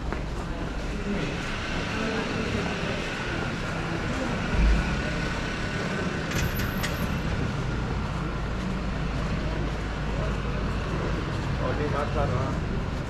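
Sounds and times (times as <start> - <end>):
heavy vehicle engine rumbling: 0.0 - 13.0
street traffic: 0.0 - 13.0
low thump: 4.5 - 5.2.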